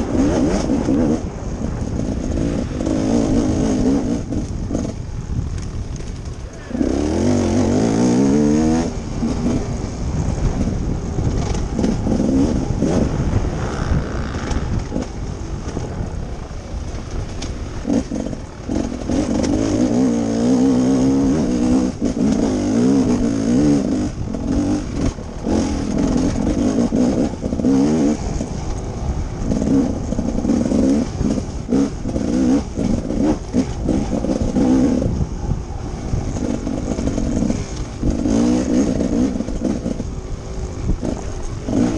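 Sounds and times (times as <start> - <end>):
dirt bike engine revving: 0.0 - 5.3, 5.9 - 41.9
wind hiss: 0.0 - 41.9.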